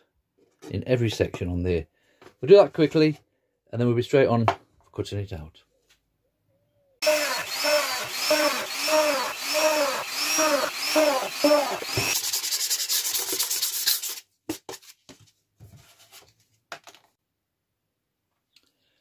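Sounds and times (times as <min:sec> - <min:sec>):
hand sanding plywood: 0:07.0 - 0:14.2.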